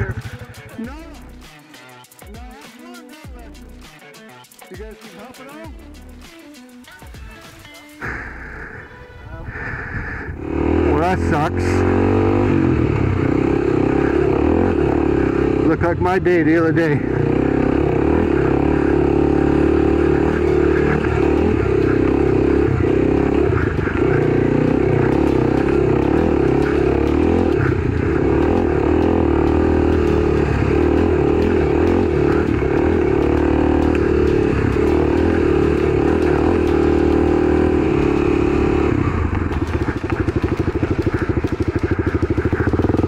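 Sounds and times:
motorcycle engine running: 0:00.0 - 0:01.6, 0:10.2 - 0:43.0.

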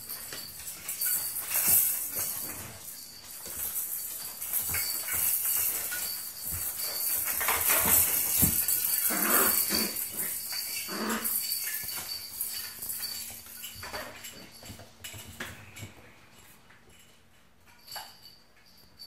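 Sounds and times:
plastic toys clicking and rattling: 0:00.0 - 0:16.0
claws on wooden floor: 0:00.3 - 0:16.0
puppies growling and yelping: 0:08.0 - 0:12.0.

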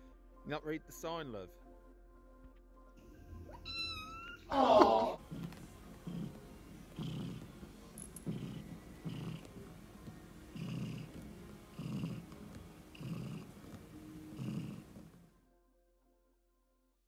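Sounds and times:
cat purring: 0:05.2 - 0:15.2.

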